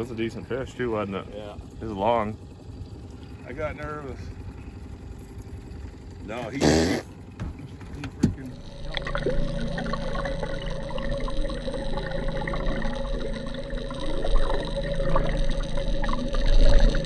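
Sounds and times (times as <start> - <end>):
steady hum: 0.0 - 17.0
water rushing underwater: 8.6 - 17.0.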